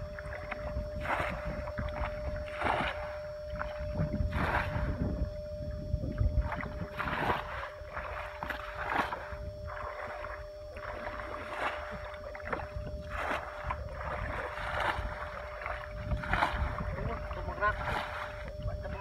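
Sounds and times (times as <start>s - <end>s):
hands splashing in muddy water: 0.5s - 3.7s.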